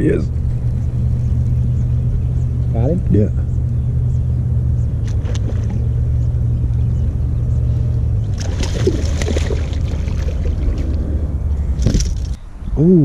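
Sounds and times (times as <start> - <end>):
steady low rumble: 0.0 - 13.0
fish splashing at water surface: 8.3 - 11.0.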